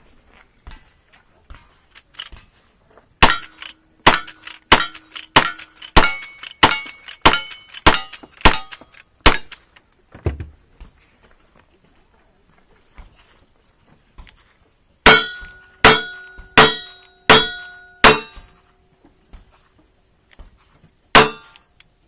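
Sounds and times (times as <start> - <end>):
metallic ring: 3.2 - 9.6, 15.0 - 18.8, 21.2 - 21.8
rifle gunshots: 3.2 - 9.6
soft thump: 10.1 - 10.6.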